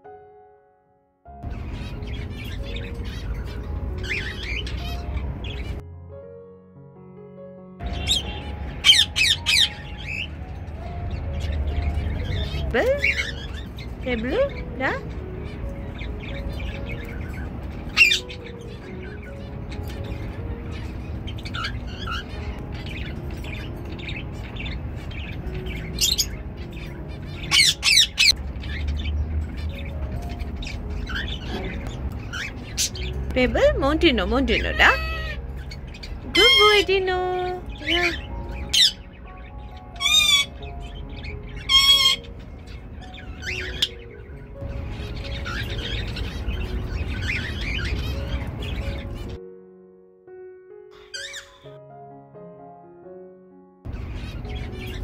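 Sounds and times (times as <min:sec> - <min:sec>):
soft background music: 0:00.0 - 0:55.0
cockatiel chirping: 0:01.6 - 0:05.8, 0:07.9 - 0:10.4, 0:15.8 - 0:28.9, 0:34.6 - 0:36.9, 0:39.9 - 0:44.2, 0:51.0 - 0:51.7
cockatiel shrill calls: 0:27.5 - 0:28.4, 0:34.7 - 0:35.7, 0:40.0 - 0:40.6, 0:41.6 - 0:42.3, 0:51.0 - 0:51.7
cockatiel whistling: 0:51.0 - 0:51.7.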